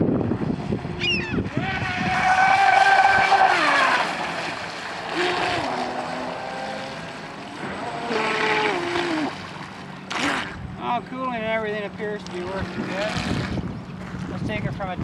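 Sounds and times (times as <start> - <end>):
electric motor whining: 0.3 - 9.4.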